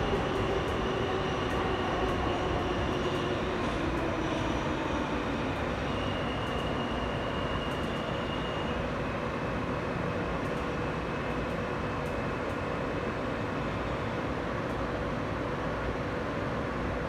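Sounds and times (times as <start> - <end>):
subway wheels rumbling on rail: 0.0 - 17.0.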